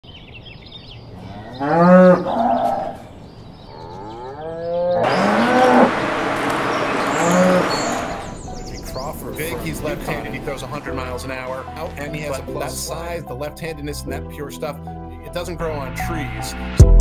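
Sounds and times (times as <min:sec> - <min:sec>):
cows mooing: 0:01.1 - 0:03.1, 0:03.7 - 0:08.4
steady rushing background: 0:05.9 - 0:12.3.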